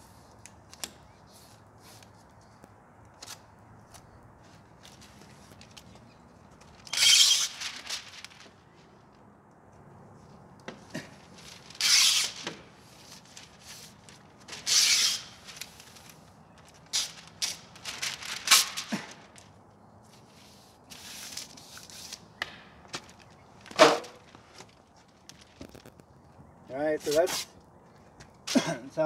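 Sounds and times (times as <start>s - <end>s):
paper crinkling: 3.2s - 9.0s, 11.0s - 22.3s, 22.9s - 26.2s
sharp paper snaps: 6.6s - 8.6s, 11.4s - 19.5s
tape ripping off roll: 6.6s - 8.6s, 10.7s - 19.6s, 20.9s - 26.1s.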